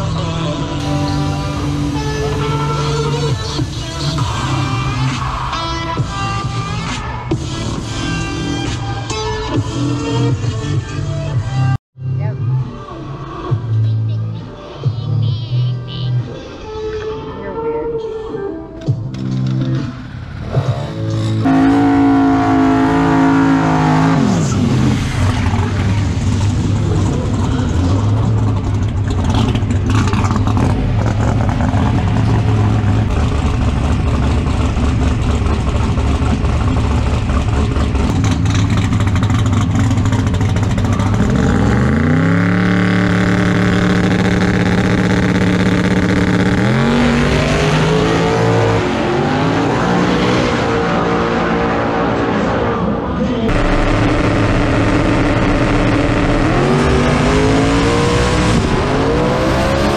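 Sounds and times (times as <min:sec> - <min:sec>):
race car engine revving: 0:19.1 - 0:59.9.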